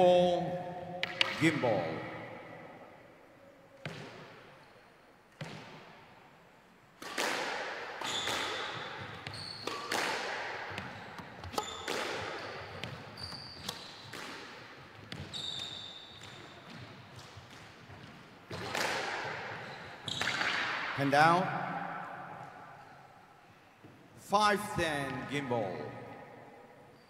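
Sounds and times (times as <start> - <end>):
squash ball hitting rackets and walls: 1.0 - 1.5, 3.8 - 4.6, 5.3 - 6.1, 7.0 - 21.0
shoes squeaking on wooden floor: 9.0 - 9.8, 12.5 - 13.8, 15.2 - 16.5.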